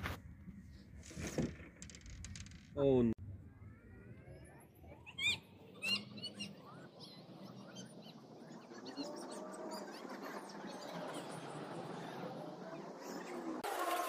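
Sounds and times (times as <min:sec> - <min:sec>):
birds calling and chirping: 0:04.4 - 0:13.6.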